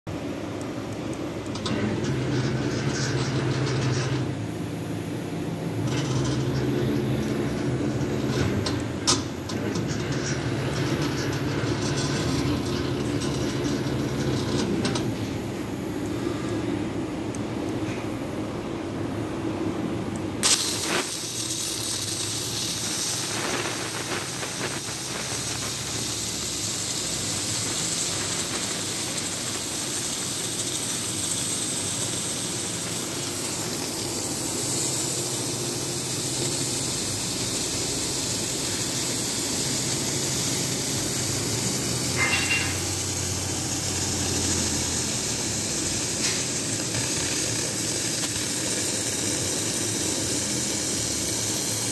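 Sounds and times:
low machine hum: 0.1 - 20.6
cutting torch hissing: 20.4 - 51.9.

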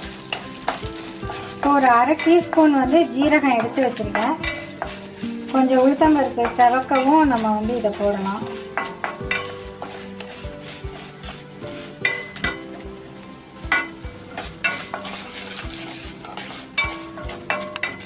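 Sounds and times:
wooden spatula scraping a pan: 0.0 - 13.0, 13.7 - 18.0
oil sizzling in a pan: 0.0 - 18.0
spatula knocking against pan: 8.7 - 10.4.

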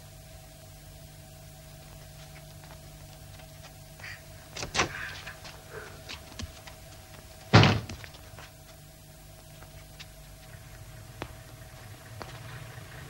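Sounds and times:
light knocks and bumps: 4.5 - 8.8
heavy slam: 7.5 - 8.0.

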